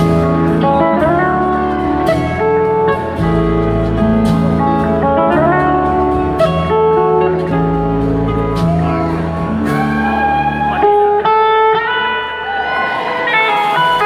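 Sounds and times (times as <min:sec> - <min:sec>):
drums and cymbals: 0:00.0 - 0:11.0
bass guitar: 0:00.0 - 0:14.0
slide guitar gliding notes: 0:00.0 - 0:14.0.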